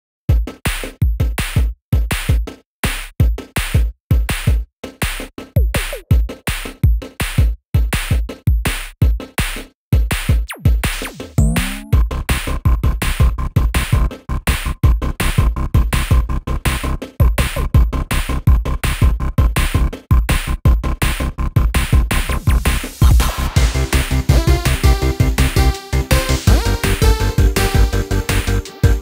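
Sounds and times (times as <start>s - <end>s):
drum-machine beat: 0.3s - 12.2s, 12.8s - 29.0s
synth pitch sweeps: 11.4s - 12.0s.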